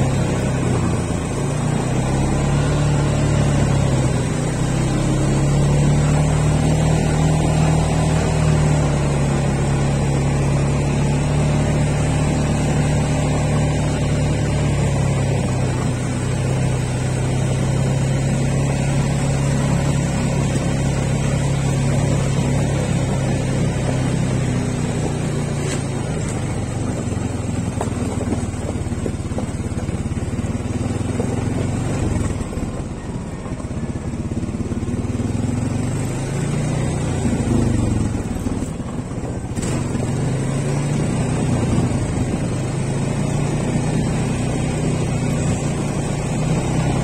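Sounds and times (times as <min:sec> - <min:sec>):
atv engine running: 0:00.0 - 0:47.0.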